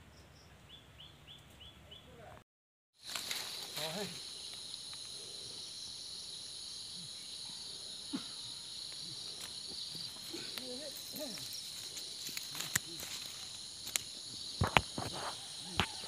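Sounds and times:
insects shrilling: 3.0 - 16.0.

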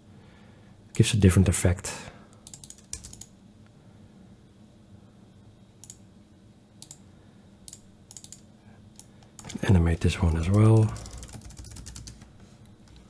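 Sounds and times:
faint room hum: 0.0 - 13.0
computer mouse clicks: 2.3 - 3.3, 5.8 - 6.0, 6.8 - 7.0, 7.7 - 9.6.

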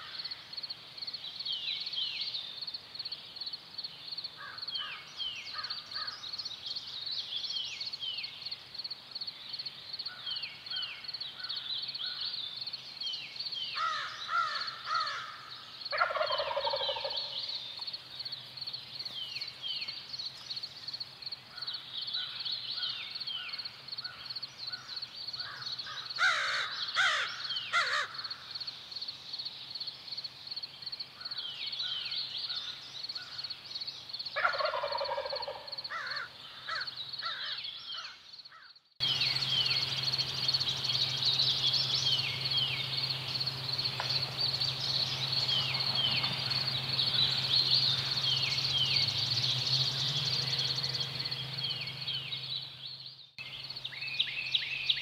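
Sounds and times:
birdsong chirps: 0.0 - 55.0
turkey gobbling: 15.9 - 17.4, 34.4 - 35.7
turkey rattling call: 15.9 - 17.4, 34.4 - 37.6.

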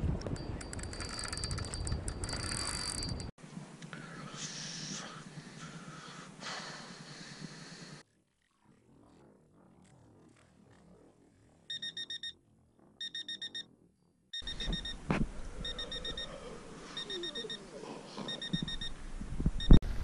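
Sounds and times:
alarm clock beeping: 11.7 - 12.4, 13.0 - 13.7, 14.4 - 15.0, 15.6 - 16.3, 17.0 - 17.6, 18.3 - 18.9.

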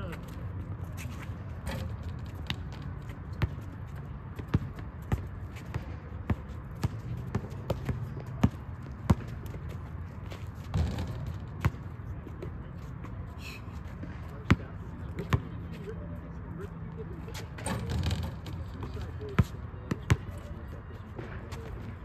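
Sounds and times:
basketball bouncing on hard court: 1.8 - 9.8, 10.6 - 12.4, 17.9 - 20.4.

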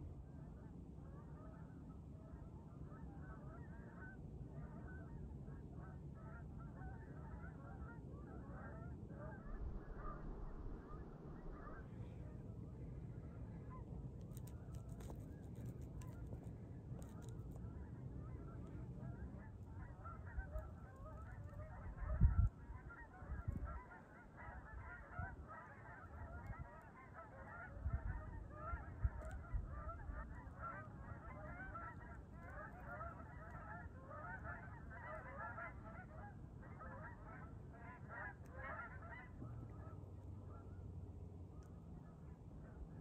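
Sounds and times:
geese honking: 5.8 - 12.6, 13.2 - 40.7.

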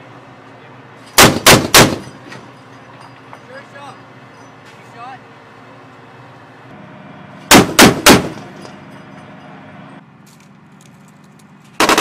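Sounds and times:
automatic gunfire burst: 1.2 - 2.0, 7.5 - 8.4, 11.8 - 12.0
heavy cannon shots: 1.2 - 2.2, 7.4 - 8.8, 11.8 - 12.0.

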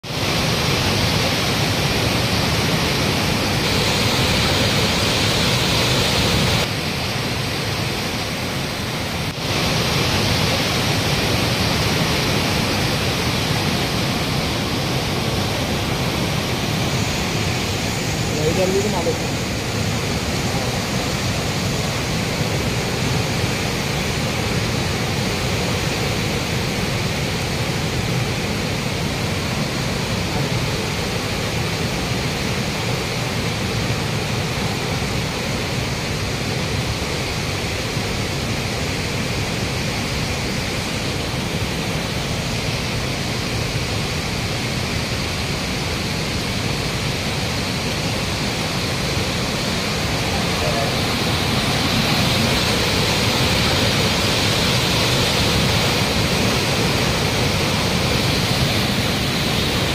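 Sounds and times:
river water rushing: 0.0 - 59.9.

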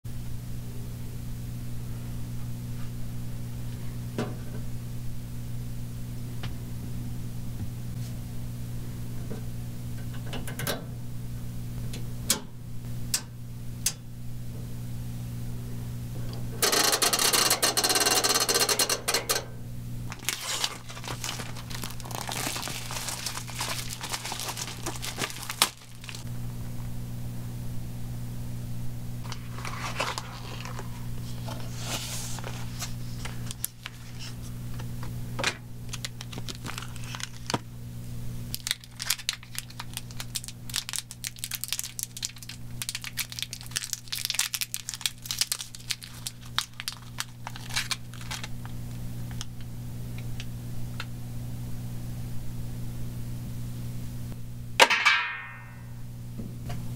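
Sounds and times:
steady low hum: 0.1 - 56.9
plastic packaging crinkling and tearing: 20.1 - 26.3, 29.3 - 34.5, 35.9 - 37.7, 38.5 - 49.6.

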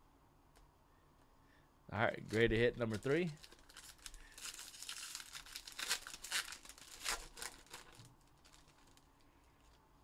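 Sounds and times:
foil wrapper crinkling: 2.1 - 9.8.

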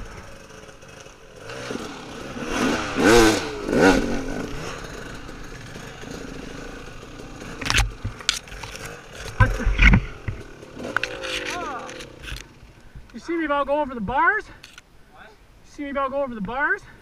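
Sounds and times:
dirt bike engine revving: 0.0 - 12.6
heavy thumps and clatter: 7.5 - 12.5.

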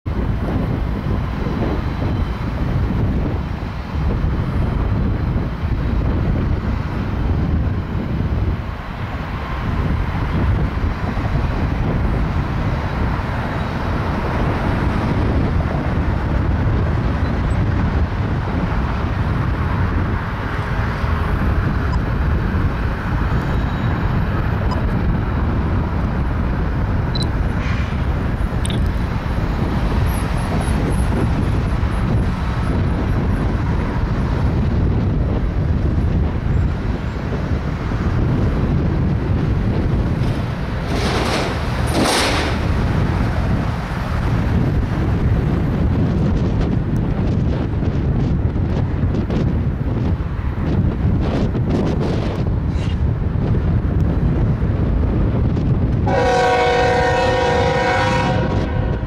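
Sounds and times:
diesel locomotive engines rumbling: 0.0 - 59.0.

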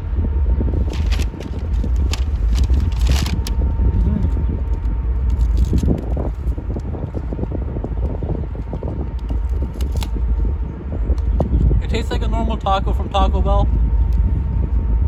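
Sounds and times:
city traffic: 0.0 - 15.0
wind on microphone: 0.0 - 15.0
plastic glove and container crinkling: 0.8 - 7.1.

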